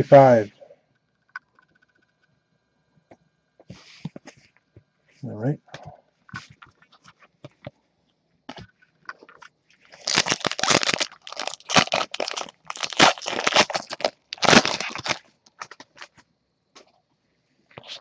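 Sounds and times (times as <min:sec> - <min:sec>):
foil wrapper crinkling and tearing: 0:09.9 - 0:16.1.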